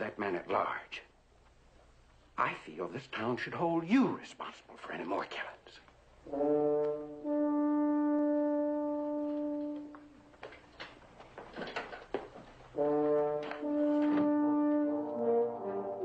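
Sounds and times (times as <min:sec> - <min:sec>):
dramatic brass chords: 0:06.2 - 0:10.3, 0:12.7 - 0:16.0.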